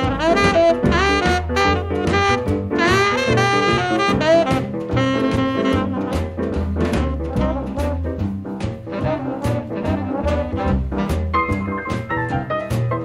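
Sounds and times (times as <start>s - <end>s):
bass line: 0.0s - 13.0s
jazz with saxophone and brass: 0.0s - 13.0s.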